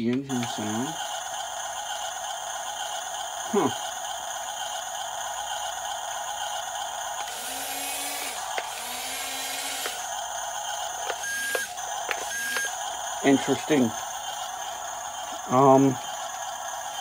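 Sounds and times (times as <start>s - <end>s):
small drive motors whirring: 0.1s - 17.0s
thin electronic engine drone: 5.4s - 17.0s.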